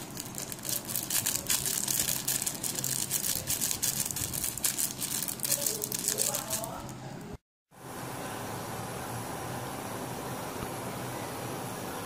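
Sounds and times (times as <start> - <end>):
plastic packet crinkling: 0.0 - 7.3.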